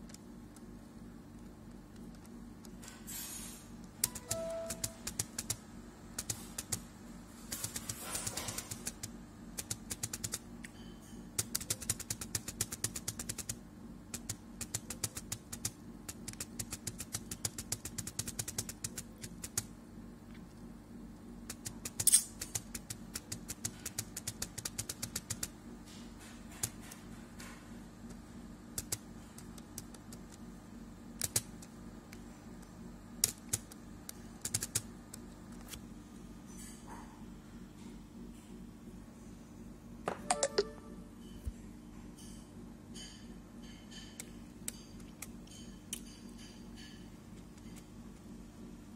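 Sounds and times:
computer mouse clicking: 1.4 - 2.8, 3.8 - 5.6, 6.2 - 6.8, 7.5 - 10.4, 11.4 - 19.7, 21.5 - 25.5, 28.8 - 30.4, 31.2 - 32.2, 33.2 - 35.2.

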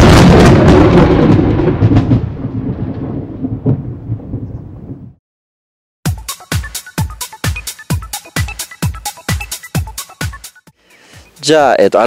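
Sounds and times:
thunder clap rumbling: 0.0 - 5.2
thunder crackles: 0.0 - 5.2.

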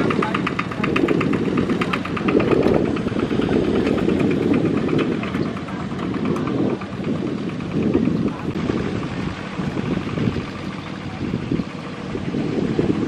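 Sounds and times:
diesel tractor engine running: 0.0 - 13.0.

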